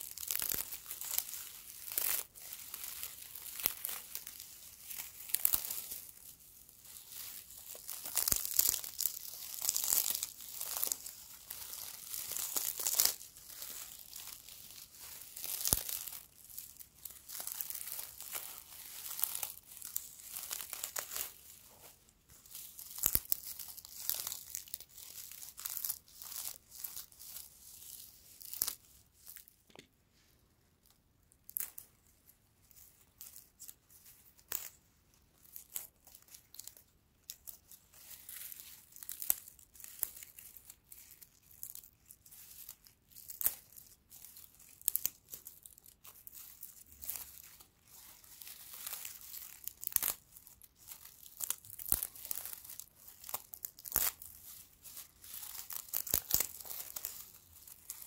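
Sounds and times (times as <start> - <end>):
dry straw crackling and snapping: 0.0 - 21.8, 22.4 - 29.5, 35.5 - 42.0, 42.6 - 58.0.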